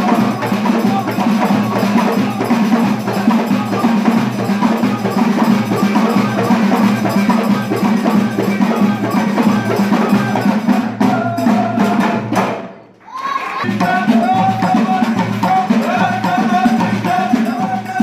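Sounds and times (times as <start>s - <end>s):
frame drums beaten with jingles: 0.0s - 12.8s, 13.6s - 18.0s
hand clapping: 12.4s - 14.4s.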